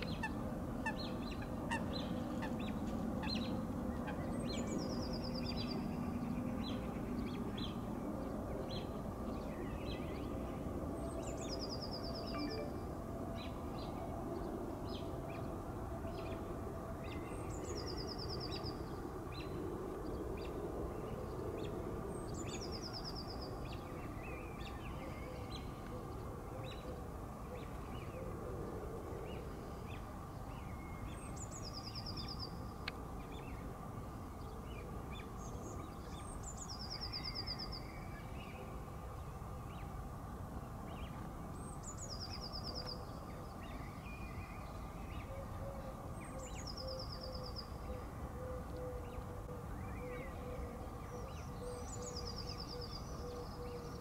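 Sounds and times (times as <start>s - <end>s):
songbird trilling song: 11.2s - 13.5s, 40.9s - 54.0s.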